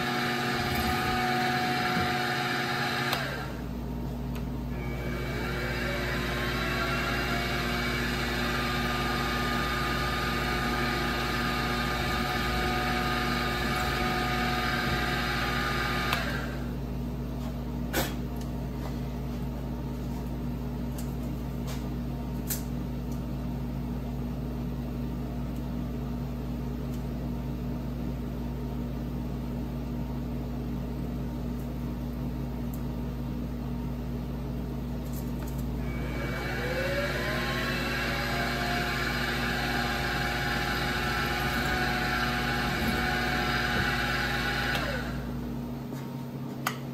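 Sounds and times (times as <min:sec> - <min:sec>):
mill spindle whine: 0:00.0 - 0:16.9, 0:35.8 - 0:46.0.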